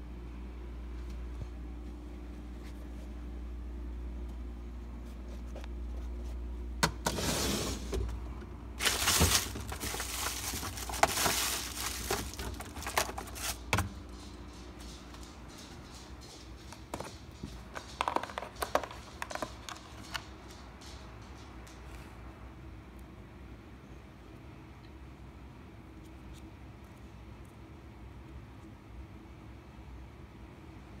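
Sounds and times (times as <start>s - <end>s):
low steady hum: 0.0s - 31.0s
rustling of packaging: 8.8s - 20.7s.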